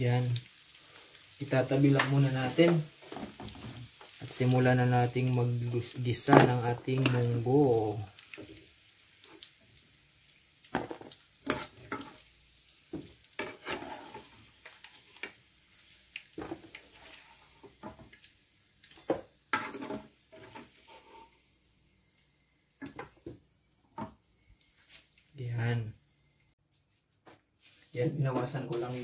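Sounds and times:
hot oil sizzling: 0.0s - 26.6s
metal utensil scraping frying pan: 10.9s - 12.2s, 13.3s - 15.4s, 16.4s - 18.0s, 19.0s - 21.4s.

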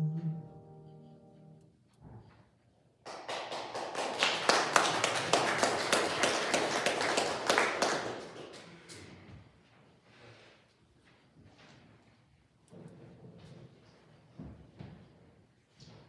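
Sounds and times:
people applauding: 3.0s - 9.1s.

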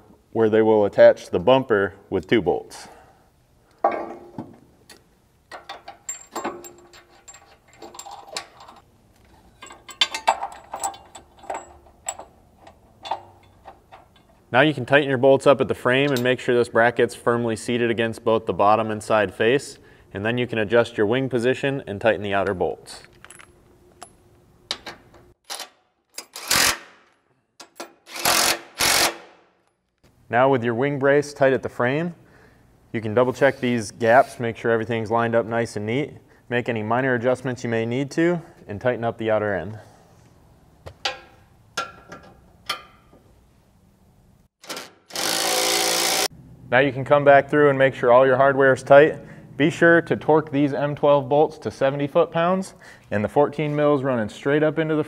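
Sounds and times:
impact wrench bursts: 26.2s - 27.1s, 28.0s - 29.4s, 44.6s - 46.3s.

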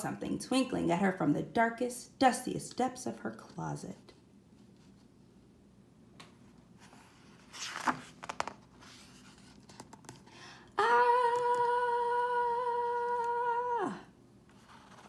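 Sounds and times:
book page turning: 6.8s - 10.3s, 14.5s - 15.0s.

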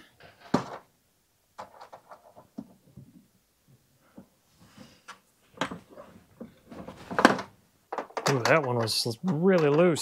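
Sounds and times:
tool tapping on plastic: 7.2s - 10.0s.

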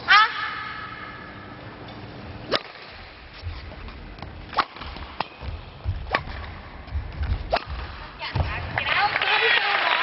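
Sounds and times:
low thuds: 3.4s - 8.9s.

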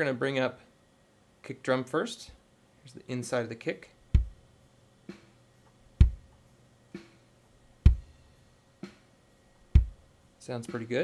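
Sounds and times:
kick drum thump: 4.1s - 4.4s, 6.0s - 6.4s, 7.8s - 8.1s, 9.7s - 10.0s.

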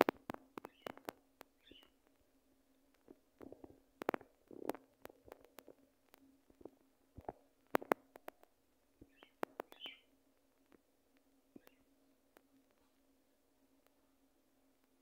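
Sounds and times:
budgerigar beaks clicking: 0.3s - 2.0s
soft bird chirps: 0.6s - 2.0s, 9.0s - 10.2s, 11.5s - 12.0s.

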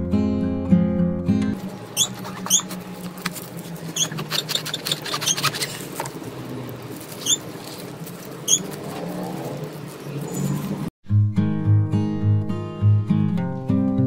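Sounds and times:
gloved hands handling sandwich: 1.6s - 10.2s
short high squeaks: 1.8s - 3.0s, 3.7s - 6.0s, 7.1s - 8.8s
knife cutting crusty bread: 2.1s - 6.2s.

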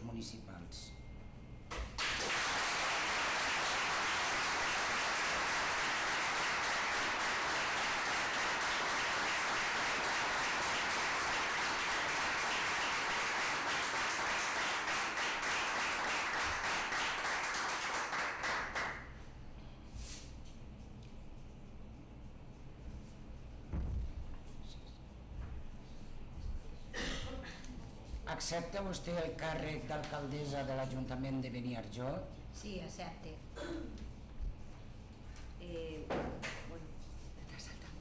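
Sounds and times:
audience applauding: 2.0s - 19.2s.

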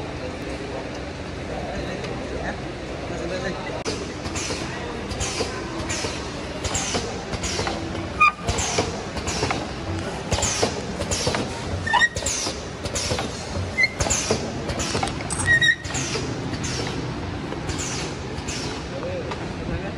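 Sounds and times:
machine clicks and knocks: 3.9s - 18.9s
short squeaks: 8.2s - 8.8s, 11.8s - 17.0s.

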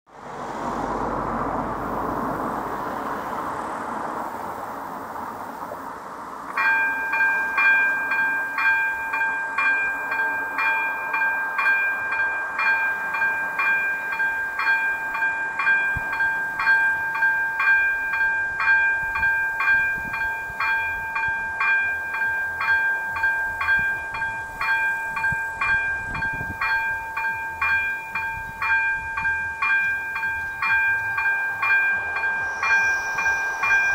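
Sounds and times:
rushing noise: 0.1s - 8.0s, 23.6s - 33.9s
level crossing warning bell: 6.5s - 33.9s.

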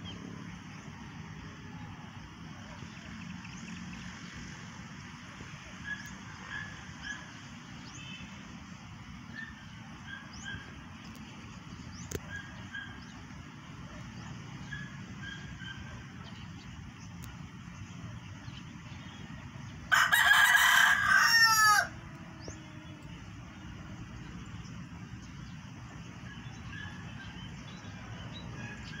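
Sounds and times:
rooster crowing: 19.9s - 22.8s.

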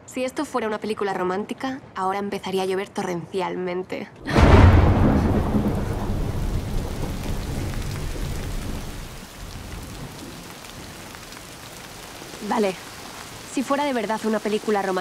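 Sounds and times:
thunder rumbling: 4.2s - 14.3s
heavy rain pouring: 4.2s - 15.0s.

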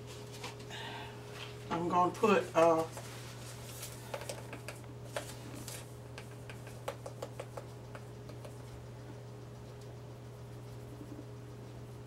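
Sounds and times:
steady low hum: 0.0s - 12.0s
plastic spoon tapping spice shaker: 4.1s - 5.2s, 6.1s - 8.6s.

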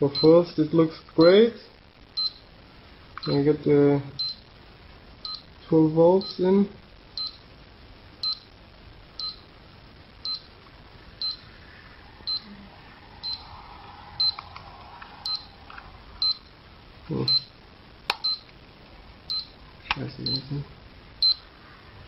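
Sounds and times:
tester short high beeps: 15.2s - 15.5s.

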